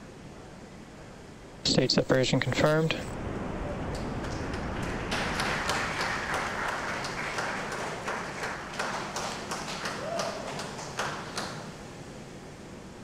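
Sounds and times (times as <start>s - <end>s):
crowd applauding: 3.9s - 12.2s.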